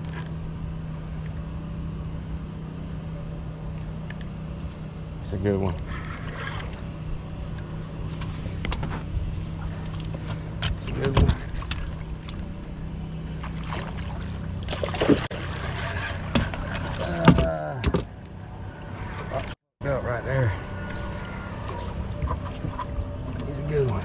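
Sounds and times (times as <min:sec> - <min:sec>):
water splashing: 0:13.3 - 0:15.7
fishing reel whirring: 0:15.3 - 0:17.1.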